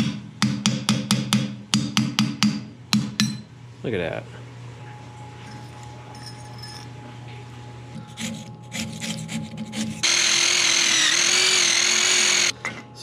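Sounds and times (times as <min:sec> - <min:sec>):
loud whirring hiss: 0:10.0 - 0:12.5.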